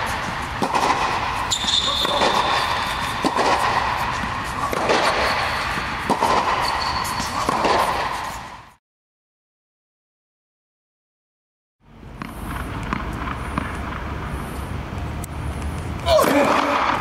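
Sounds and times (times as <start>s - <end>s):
tennis ball hits and bounces: 0.0s - 8.5s, 12.2s - 14.1s
tennis shoes squeaking: 0.0s - 8.5s.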